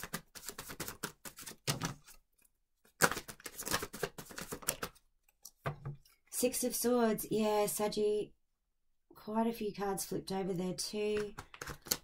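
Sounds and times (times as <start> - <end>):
cards being shuffled: 0.0 - 2.2, 2.9 - 5.0, 11.2 - 12.0.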